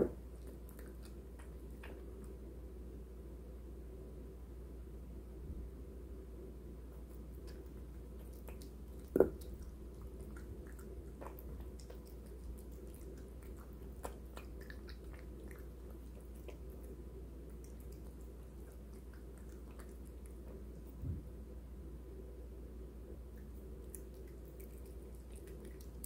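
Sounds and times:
cat chewing food: 0.0 - 2.9, 6.9 - 21.5, 23.1 - 26.0.

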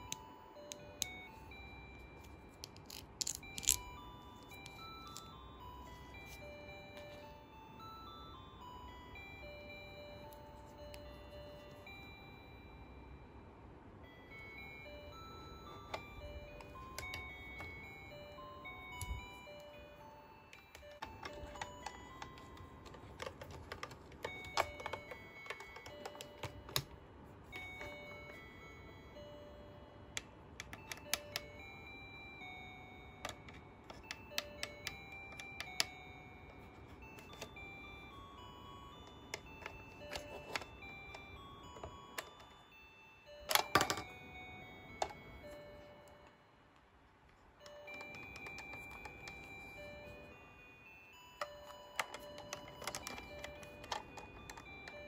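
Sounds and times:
toy cash register beeps: 0.0 - 13.2, 14.0 - 46.5, 47.6 - 55.0
plastic buttons clicking: 20.6 - 26.9, 43.5 - 44.2, 47.7 - 49.6, 51.4 - 55.0
toy electronic beeps: 47.6 - 55.0.

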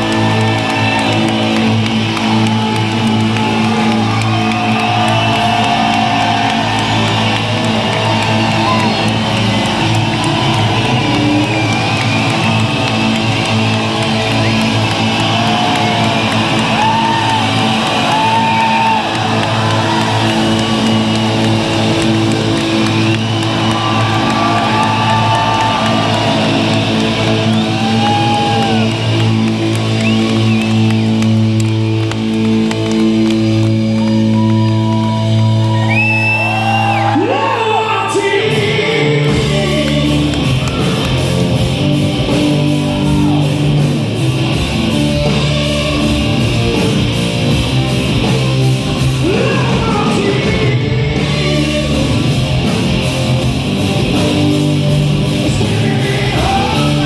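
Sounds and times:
live rock band playing a ballad: 38.5 - 57.0.

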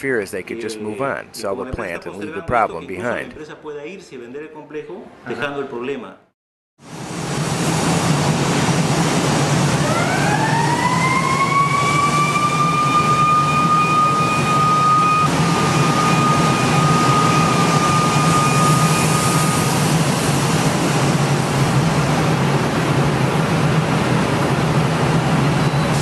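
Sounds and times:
high whine rising in pitch: 6.9 - 26.0
machinery din with low hum: 6.9 - 26.0.

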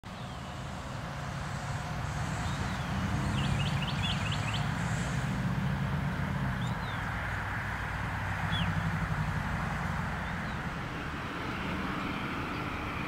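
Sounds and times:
diesel locomotives rumbling: 0.0 - 13.0
small bird chirping: 2.4 - 4.7.

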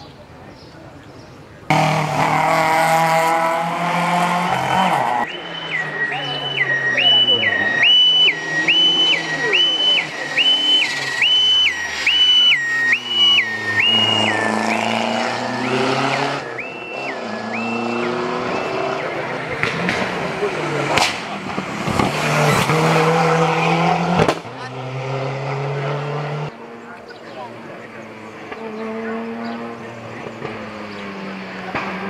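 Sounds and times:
car engine passing: 1.7 - 32.0
two-tone siren: 5.2 - 19.4.

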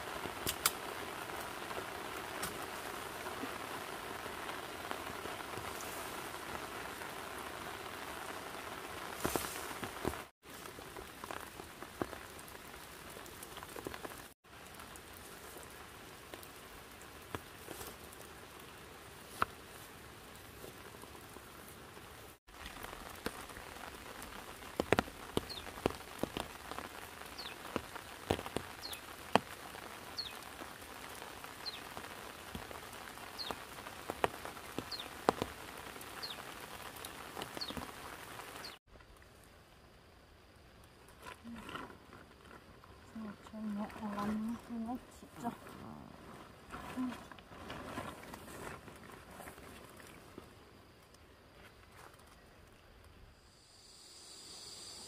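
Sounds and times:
light rain pattering: 0.0 - 53.5
single raindrops ticking: 0.2 - 2.8, 22.5 - 39.6.

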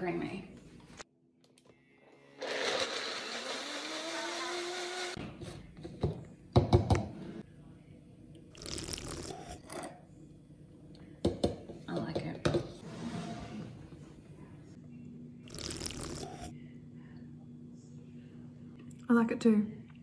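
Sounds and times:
blender motor spinning up: 2.3 - 5.2
slurp through a straw: 8.6 - 9.7, 15.5 - 16.5.

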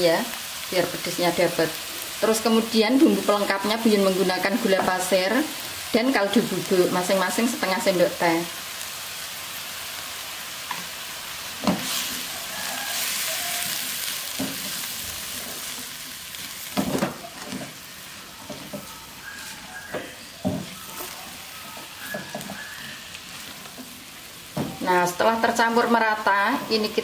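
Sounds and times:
food sizzling in a wok: 0.0 - 27.0
spatula scraping and knocking wok: 10.6 - 25.0.

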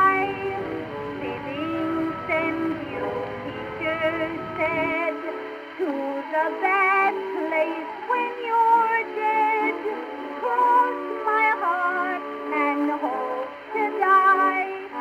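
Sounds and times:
low background rumble: 0.0 - 5.1
instrumental accompaniment: 0.0 - 13.8
woman singing with vibrato: 0.0 - 15.0.

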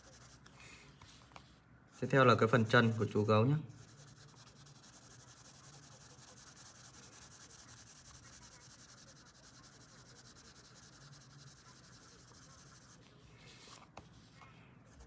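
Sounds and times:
colored pencil scratching on paper: 0.0 - 15.0.

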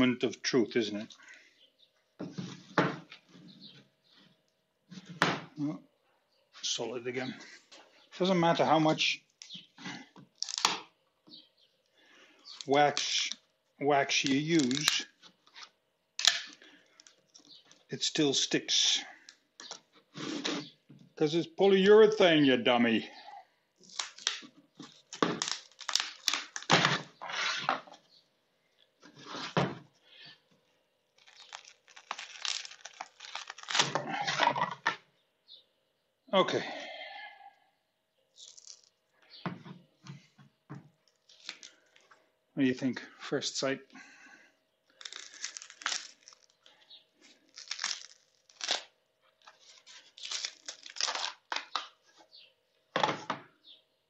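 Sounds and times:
foam tearing and crackling: 10.4 - 10.8, 14.2 - 15.1, 23.8 - 27.7, 31.1 - 34.5, 44.9 - 46.6, 47.2 - 51.8
foam cast cracking from plastic mold: 23.8 - 27.2, 31.2 - 34.9.

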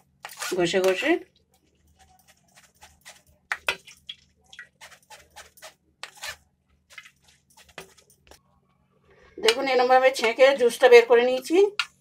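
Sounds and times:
spoon scraping pulp through strainer: 1.7 - 4.0, 4.6 - 8.1.

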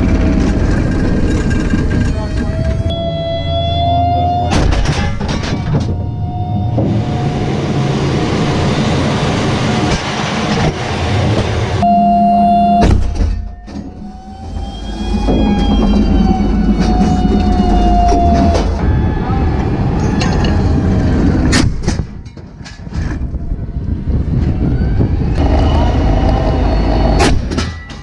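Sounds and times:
heavy rumble: 0.0 - 11.9, 12.8 - 28.0
turbine engine whine: 0.0 - 28.0
metallic clanks: 4.5 - 6.1.

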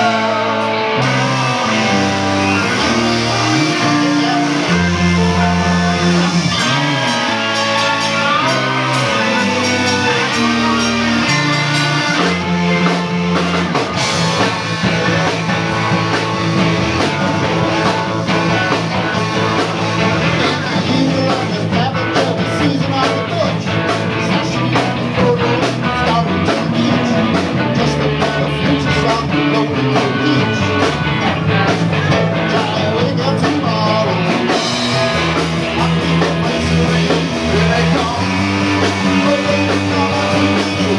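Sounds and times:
man singing into a microphone: 0.0 - 7.0, 8.0 - 12.3, 20.4 - 31.7, 32.3 - 34.7, 35.6 - 40.9
rock band playing: 0.0 - 40.9.

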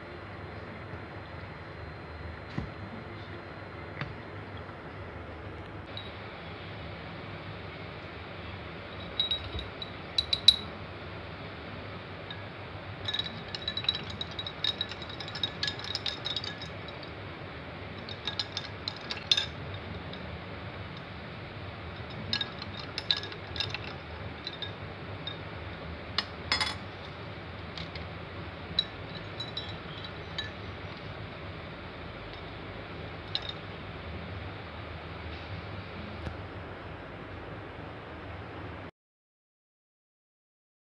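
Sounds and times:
steady low hum: 0.0 - 38.9
spoon clinking against glass: 9.0 - 10.7, 13.0 - 17.1, 18.0 - 20.3, 22.0 - 25.4, 28.7 - 31.1, 33.3 - 33.6.

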